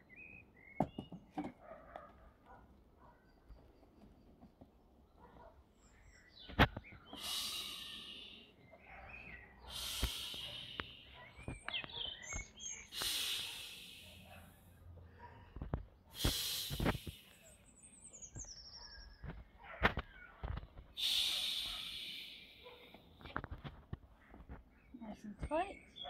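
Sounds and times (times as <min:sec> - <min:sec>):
breaths blown into inflatable valve: 0:16.2 - 0:17.2.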